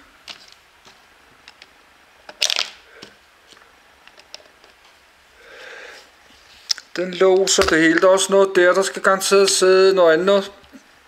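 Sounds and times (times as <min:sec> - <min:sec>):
plastic bricks clicking and rattling: 0:02.3 - 0:02.8.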